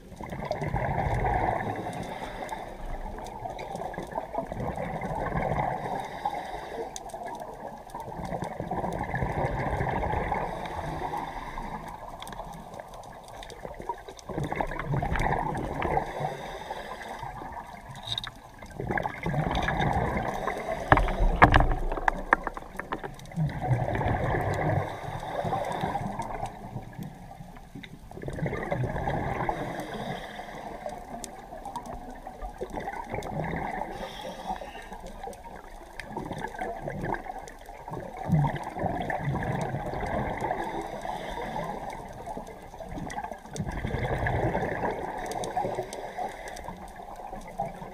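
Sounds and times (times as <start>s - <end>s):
underwater regulator breathing bubbles: 14.5s - 26.8s.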